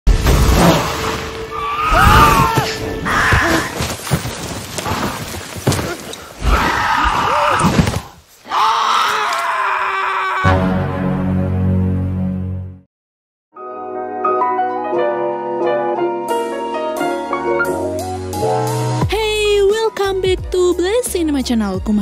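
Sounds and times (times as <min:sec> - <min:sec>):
film music: 0:00.1 - 0:03.8, 0:10.4 - 0:12.9, 0:13.5 - 0:22.0
strained cries and screams: 0:01.5 - 0:03.8, 0:06.4 - 0:07.8, 0:08.4 - 0:10.6.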